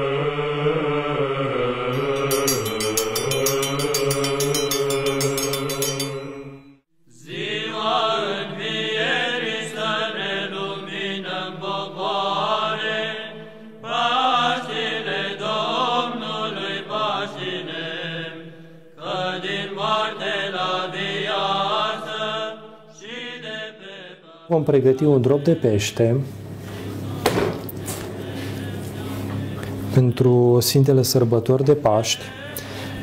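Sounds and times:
voices chanting: 0:00.0 - 0:06.2, 0:07.1 - 0:25.8.

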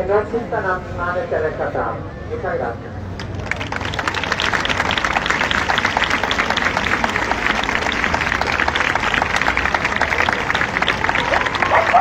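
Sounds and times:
crowd applauding: 0:03.2 - 0:12.0.

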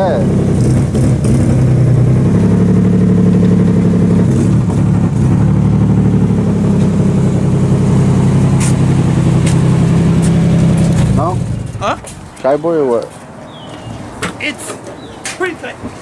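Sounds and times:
car engine running at low revs: 0:00.0 - 0:12.2
man talking: 0:11.1 - 0:13.2, 0:14.2 - 0:15.9.

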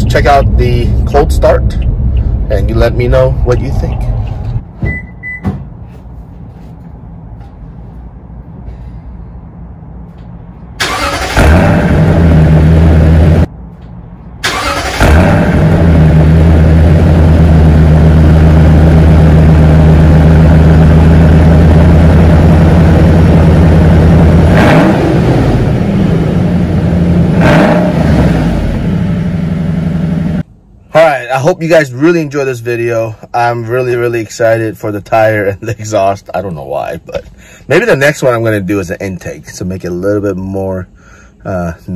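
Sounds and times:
engine cranking: 0:10.8 - 0:11.8, 0:14.4 - 0:15.5
engine revving surges: 0:10.8 - 0:13.5, 0:14.4 - 0:30.4.

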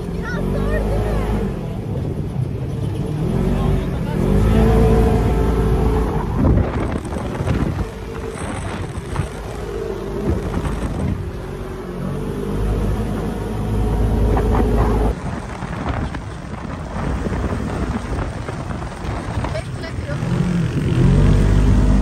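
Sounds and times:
vehicle engine rumbling: 0:00.0 - 0:22.0
wind on microphone: 0:05.2 - 0:11.5, 0:14.2 - 0:22.0.

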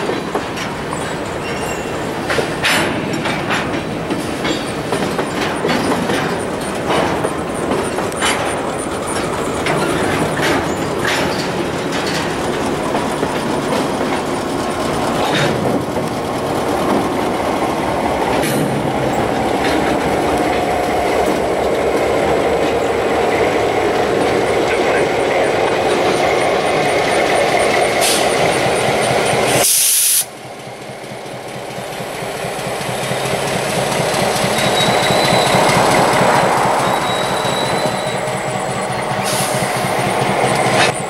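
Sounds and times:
diesel locomotive approaching: 0:00.0 - 0:41.0
train wheels clicking over rail joints: 0:00.0 - 0:41.0
short sharp hiss: 0:29.5 - 0:30.3.

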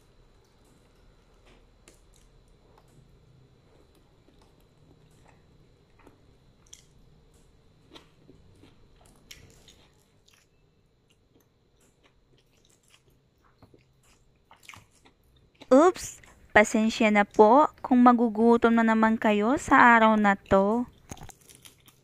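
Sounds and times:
person chewing food: 0:00.4 - 0:16.5, 0:20.9 - 0:22.0.

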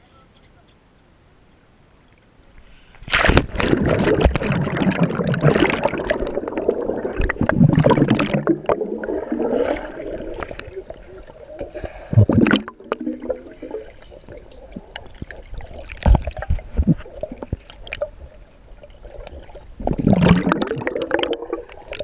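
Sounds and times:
loud water churning: 0:03.1 - 0:10.7, 0:19.8 - 0:21.8
muffled underwater water gurgling: 0:03.3 - 0:22.0.

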